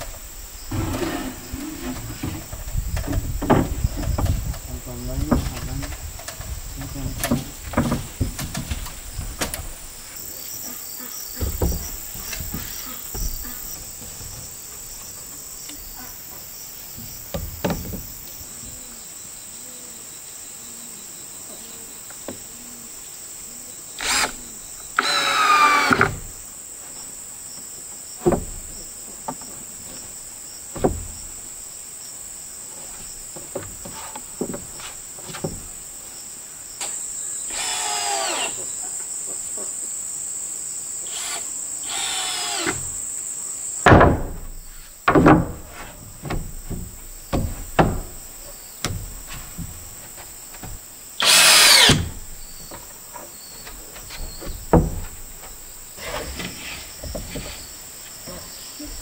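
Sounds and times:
insects droning: 0:00.0 - 0:59.0
wood knocking: 0:00.7 - 0:09.9, 0:11.3 - 0:14.6, 0:16.9 - 0:18.8, 0:28.2 - 0:29.6, 0:30.7 - 0:31.3, 0:33.3 - 0:35.8, 0:43.8 - 0:59.0
cordless drill whining: 0:24.0 - 0:24.4, 0:25.0 - 0:26.2, 0:37.5 - 0:38.6, 0:41.1 - 0:42.8, 0:51.2 - 0:52.1.

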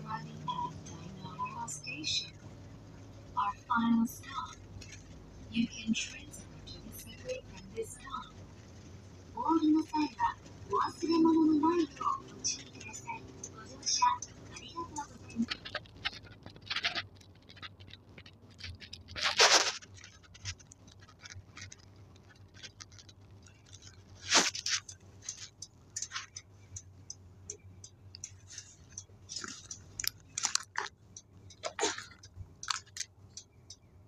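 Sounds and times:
bus engine hum: 0:00.0 - 0:34.0
bodywork rattles and clicks: 0:04.2 - 0:33.9.

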